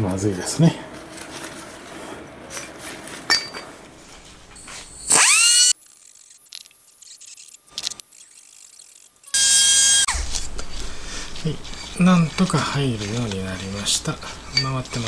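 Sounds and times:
rotary grinder grinding metal: 0:04.6 - 0:10.2.

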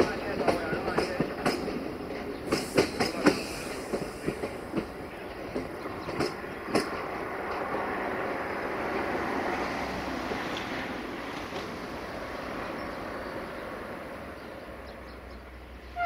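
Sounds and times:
train wheels clacking over track joints: 0:00.0 - 0:13.5
train rolling rumble: 0:00.0 - 0:16.0.

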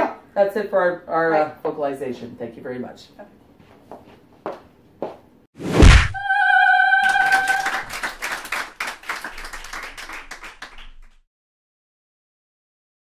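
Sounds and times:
sharp loud hit: 0:05.6 - 0:06.4.

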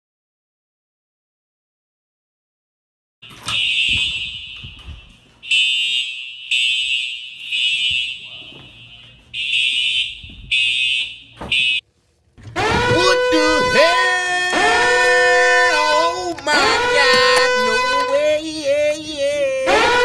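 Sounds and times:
fire alarm horn blasts: 0:03.2 - 0:11.8, 0:12.5 - 0:18.4, 0:19.6 - 0:20.0.

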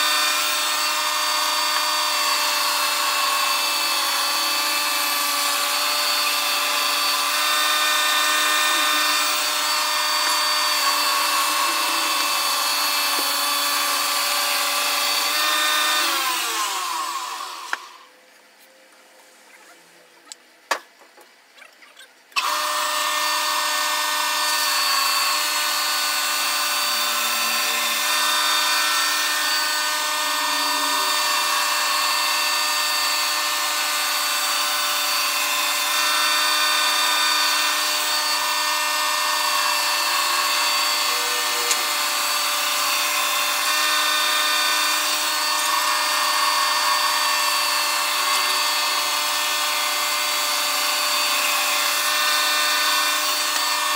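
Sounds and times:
band sawmill cutting timber: 0:00.0 - 0:18.1, 0:22.4 - 0:53.9.

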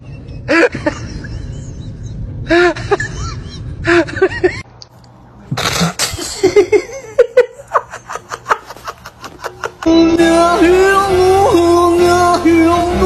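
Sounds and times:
person laughing: 0:00.0 - 0:04.6, 0:05.5 - 0:10.0.

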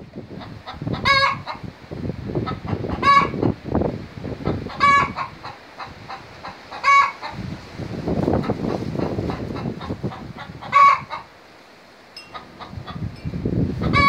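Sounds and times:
hen clucking: 0:00.4 - 0:01.7, 0:02.4 - 0:03.5, 0:04.4 - 0:07.5, 0:08.4 - 0:11.4, 0:12.2 - 0:13.2, 0:13.8 - 0:14.0
hen squawking: 0:04.7 - 0:07.4, 0:09.0 - 0:11.3.

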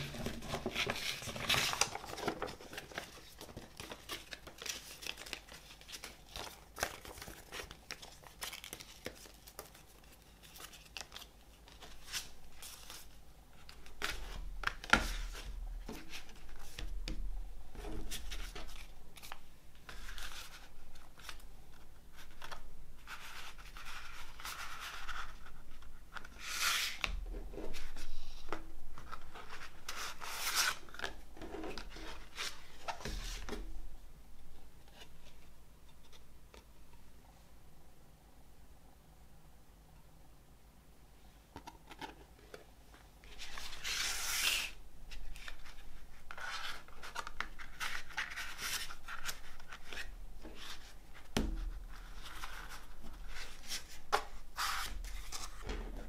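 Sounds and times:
paper poster rustling: 0:00.0 - 0:13.1, 0:41.9 - 0:56.0.

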